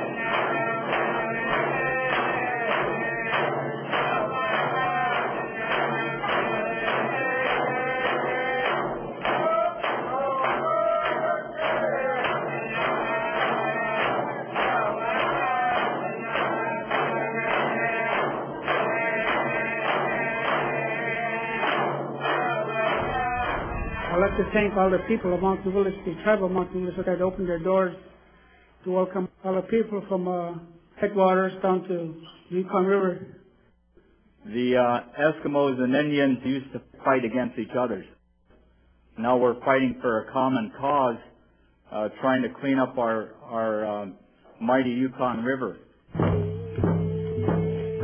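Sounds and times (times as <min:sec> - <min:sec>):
group of voices chanting: 0:00.0 - 0:26.1
steady drumbeat: 0:00.0 - 0:27.9, 0:46.1 - 0:48.0.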